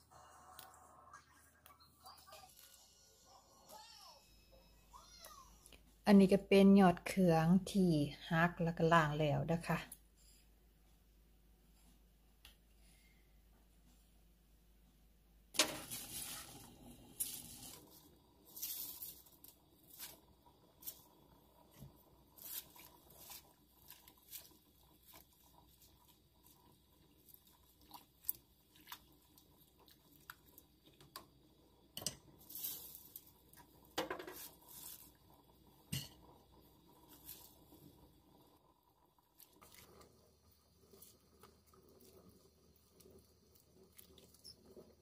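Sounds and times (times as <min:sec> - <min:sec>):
spoon stirring leaves in liquid: 0:15.6 - 0:31.3, 0:31.9 - 0:37.8, 0:39.2 - 0:40.1, 0:40.9 - 0:45.0.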